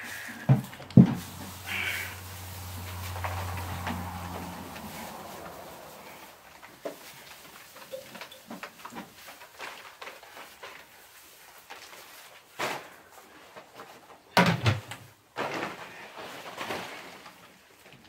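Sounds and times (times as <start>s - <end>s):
feed bags rustling: 0.0s - 14.3s, 15.2s - 18.0s.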